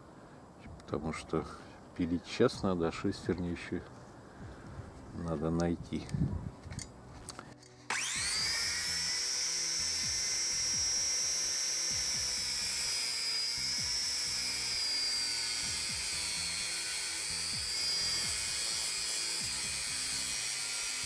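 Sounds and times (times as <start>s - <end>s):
angle grinder cutting steel: 7.9s - 21.0s.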